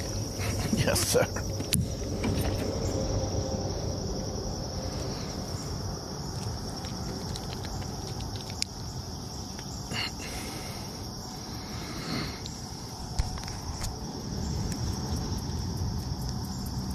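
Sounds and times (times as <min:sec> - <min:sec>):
low steady rumble: 0:00.0 - 0:08.2
insects droning: 0:00.0 - 0:16.9.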